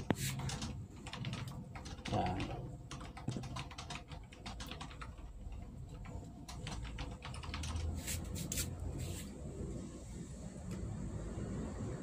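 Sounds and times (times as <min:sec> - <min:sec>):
panel clicking and tapping: 0:00.0 - 0:08.6.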